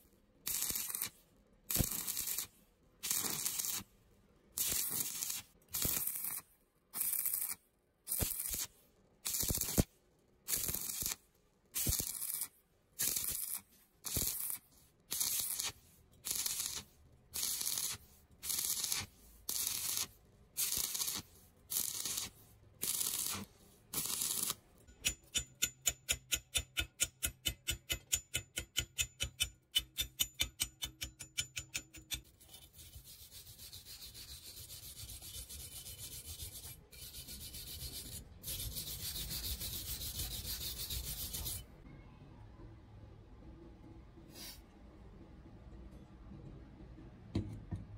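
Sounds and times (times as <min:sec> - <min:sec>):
welding arc crackling: 0:00.5 - 0:01.1, 0:01.7 - 0:03.8, 0:04.6 - 0:06.4, 0:07.0 - 0:08.7, 0:09.3 - 0:09.9, 0:10.5 - 0:11.2, 0:11.8 - 0:16.8, 0:17.4 - 0:24.6.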